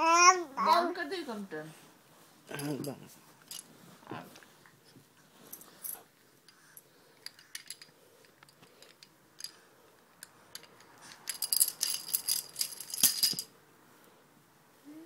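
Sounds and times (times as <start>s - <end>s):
small metallic bells jingling: 11.2s - 13.5s.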